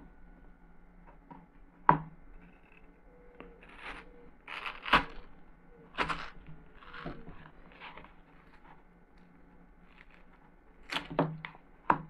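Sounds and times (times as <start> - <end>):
cutter crunching through watermelon: 2.6 - 12.0.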